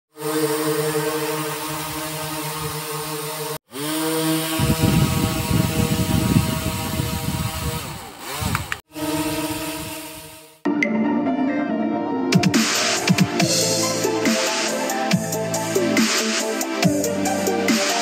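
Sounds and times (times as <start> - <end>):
drone motors whining: 0.2 - 10.6.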